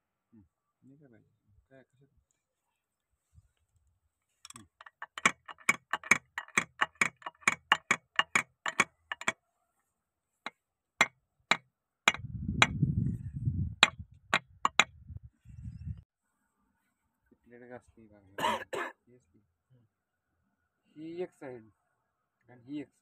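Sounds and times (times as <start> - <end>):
metallic clicks of hand tools: 4.4 - 9.4.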